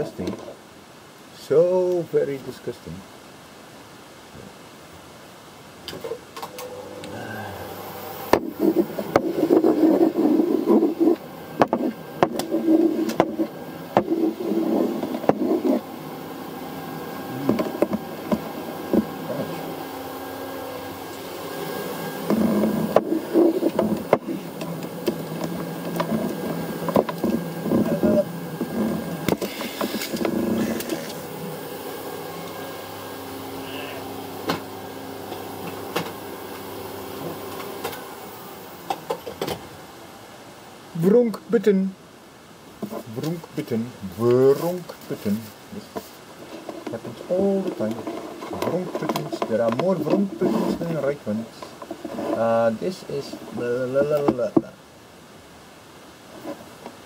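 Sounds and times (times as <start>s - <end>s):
vacuum cleaner humming: 6.4s - 41.2s, 43.2s - 54.3s
hose nozzle knocking and scraping: 8.3s - 15.8s.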